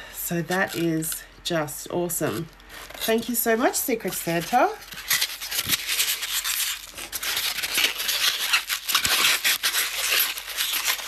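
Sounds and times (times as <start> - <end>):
packaging rustling: 2.6 - 11.0.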